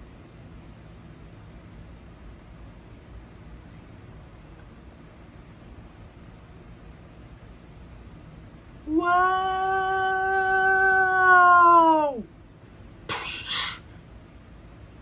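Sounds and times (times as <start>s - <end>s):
long vocal cry: 8.9s - 12.3s
short hissing burst: 13.1s - 13.9s.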